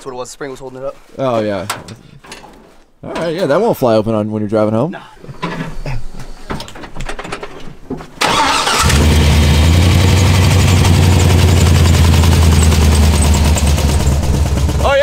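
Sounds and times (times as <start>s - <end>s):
pickup engine starting and rumbling: 8.2s - 15.0s.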